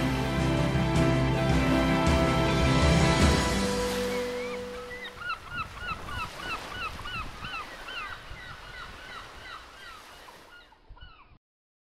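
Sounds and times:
flock of birds calling: 3.9s - 11.3s.

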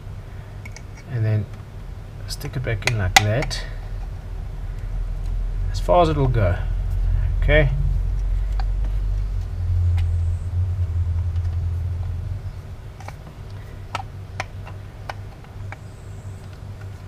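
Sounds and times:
low rumble: 2.8s - 15.2s.

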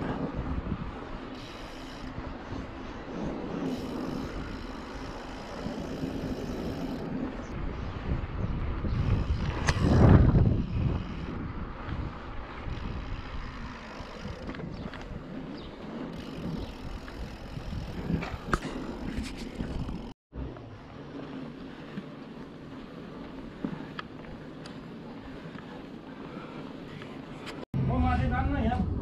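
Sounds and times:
bike clicks and rattles: 0.0s - 7.5s, 8.9s - 27.6s
wind on microphone: 0.0s - 20.2s
bike tyres rolling on concrete: 0.0s - 28.8s.

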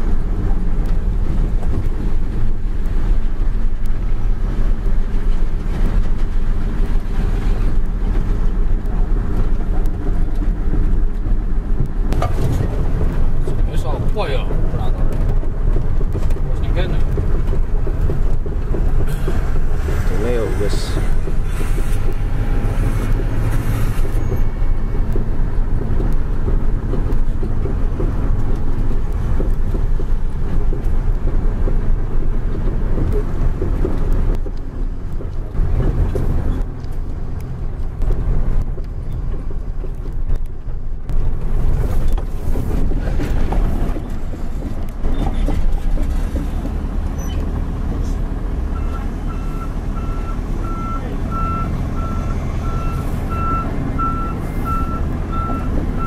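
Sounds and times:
truck diesel engine rumbling: 0.0s - 56.0s
reversing alarm beeping: 48.7s - 56.0s.

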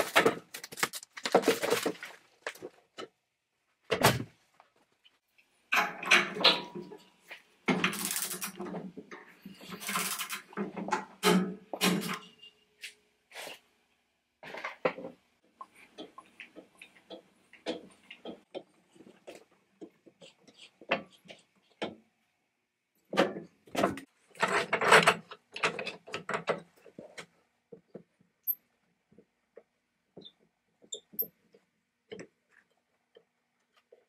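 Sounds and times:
metallic clicks and clanks: 7.7s - 12.4s.

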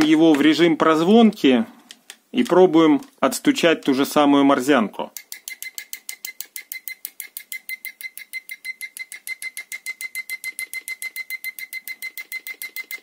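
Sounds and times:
probe tips clicking together: 5.1s - 13.0s
multimeter buzzer short beeps: 5.3s - 13.0s.

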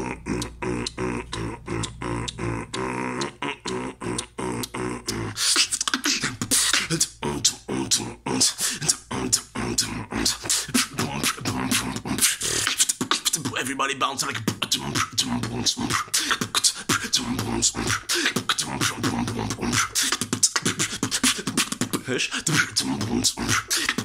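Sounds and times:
person beatboxing: 0.0s - 24.0s.

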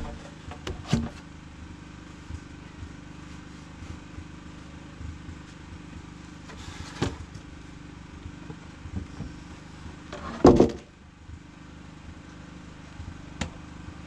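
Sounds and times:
low engine hum: 0.0s - 14.0s
wooden boards knocking: 10.3s - 10.8s
heavy wooden plank thump: 10.3s - 10.9s.

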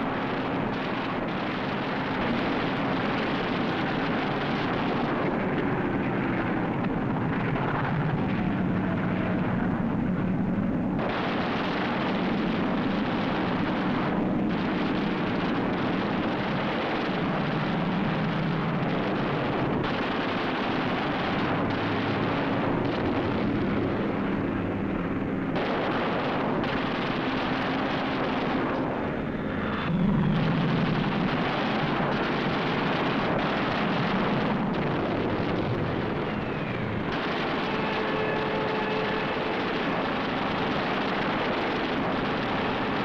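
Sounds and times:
piston aircraft engine droning: 0.0s - 43.0s.

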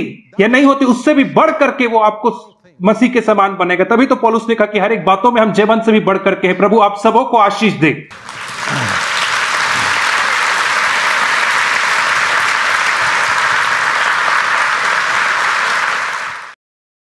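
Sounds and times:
congregation applauding: 8.1s - 16.6s.

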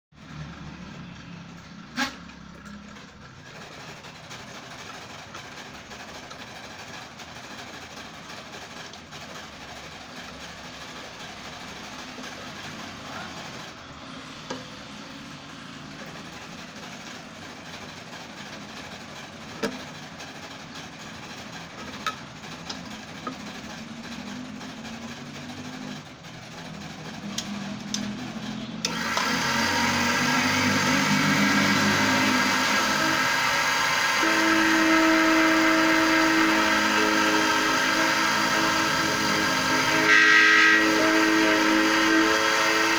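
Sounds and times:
key-cutting machine motor running: 3.4s - 42.9s.

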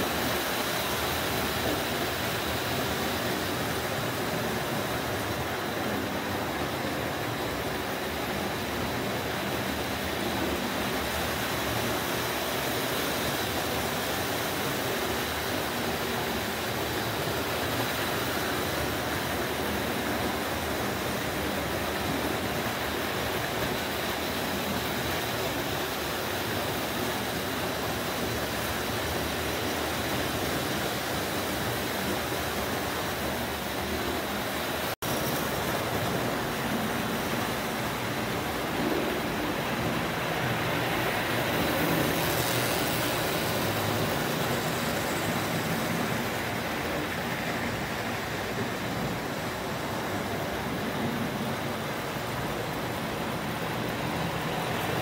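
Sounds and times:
toy train running on metal rails: 40.9s - 46.5s.

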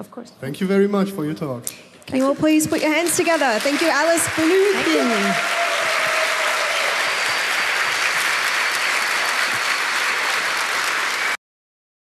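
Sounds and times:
audience applauding: 2.8s - 11.4s.

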